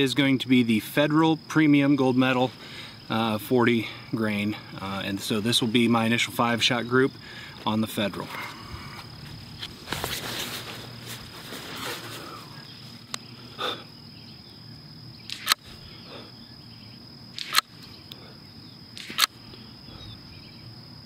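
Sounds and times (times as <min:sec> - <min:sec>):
rifle shots: 0:17.3 - 0:17.7, 0:19.0 - 0:19.4
faint rifle bolt clicks: 0:17.4 - 0:18.2.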